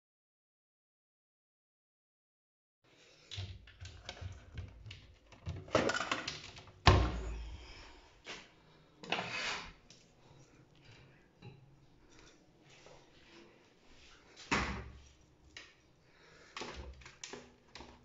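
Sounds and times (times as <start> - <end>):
toiletries clicking and rustling: 3.1 - 13.5, 14.4 - 18.0.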